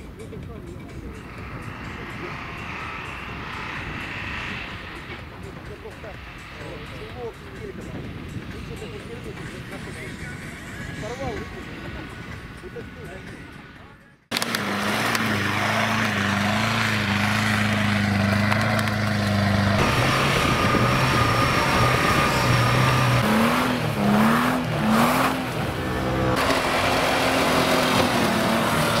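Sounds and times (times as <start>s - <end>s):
off-road engines revving: 0.0s - 29.0s.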